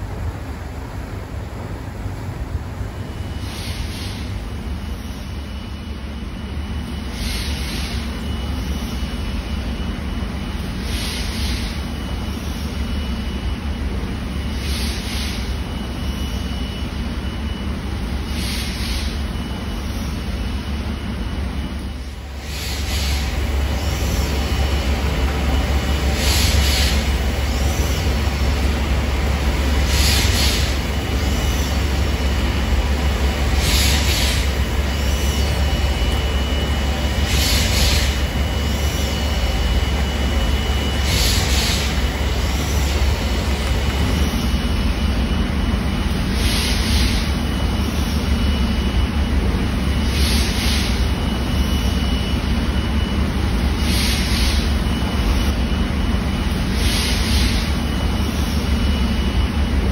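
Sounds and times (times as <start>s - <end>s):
steam engine deep rumble: 0.0s - 59.9s
steam hissing: 3.3s - 5.4s, 7.1s - 9.2s, 10.8s - 12.8s, 22.0s - 45.2s, 46.1s - 48.4s, 49.9s - 52.6s, 53.7s - 55.4s, 56.6s - 58.8s.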